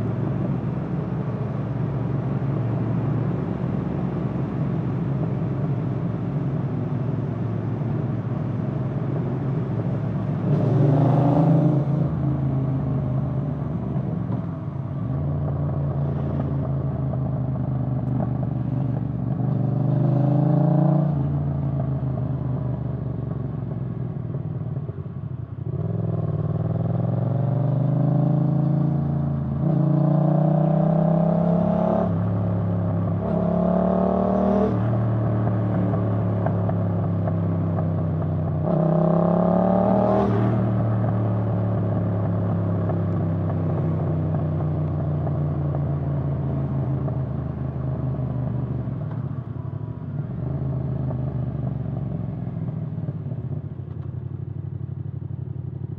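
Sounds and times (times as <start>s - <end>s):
motorcycle engine accelerating: 25.7s - 54.8s.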